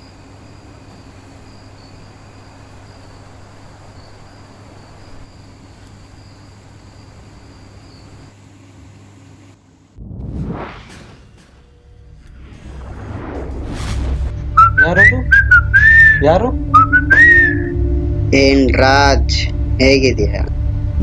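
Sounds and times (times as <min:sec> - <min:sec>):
crickets chirping: 0:00.0 - 0:09.2, 0:14.6 - 0:18.3
low hum: 0:09.5 - 0:21.0.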